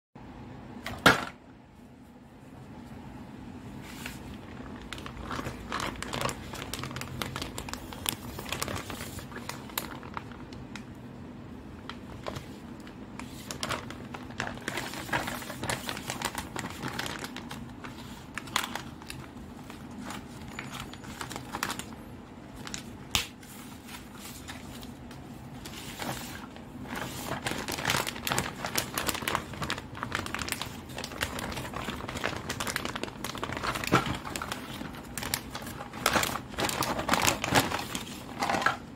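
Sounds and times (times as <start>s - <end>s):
low steady hum: 0.2s - 38.9s
plastic film crinkling: 3.8s - 11.0s, 11.6s - 38.9s.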